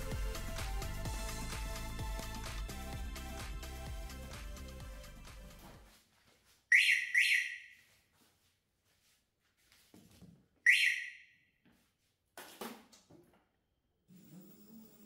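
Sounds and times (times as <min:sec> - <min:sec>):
scooter alarm chirping: 0:06.7 - 0:07.9, 0:10.7 - 0:11.5.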